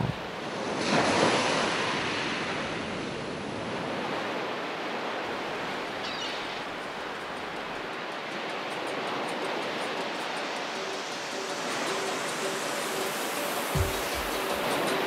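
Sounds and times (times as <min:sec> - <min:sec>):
waves breaking: 0:00.0 - 0:15.0.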